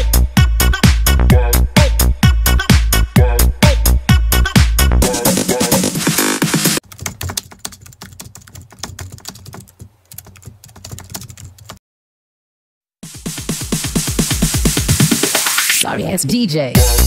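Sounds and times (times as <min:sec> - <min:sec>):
electronic dance music: 0:04.4 - 0:06.8, 0:13.0 - 0:17.0
keyboard typing clicks: 0:06.8 - 0:11.8.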